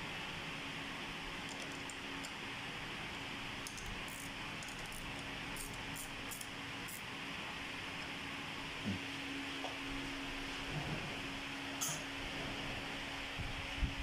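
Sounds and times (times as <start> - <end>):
steady hiss and low hum: 0.0 - 14.0
wrench clicking on metal: 3.6 - 6.5.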